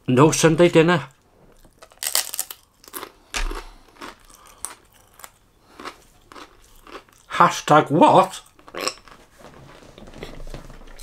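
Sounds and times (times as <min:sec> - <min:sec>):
crisp crunches of chewing: 0:01.6 - 0:07.3.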